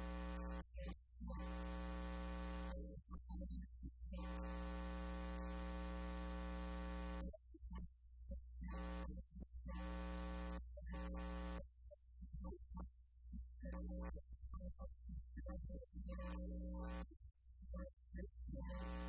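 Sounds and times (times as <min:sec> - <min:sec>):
electrical mains hum and buzz: 0:00.0 - 0:02.8, 0:04.1 - 0:07.4, 0:09.7 - 0:11.6, 0:18.6 - 0:19.0.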